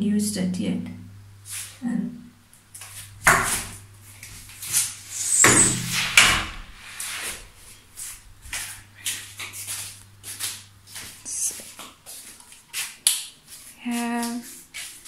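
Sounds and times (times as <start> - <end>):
steady low hum: 0.7 - 11.5
knocks and scuffs of movement: 7.0 - 15.0.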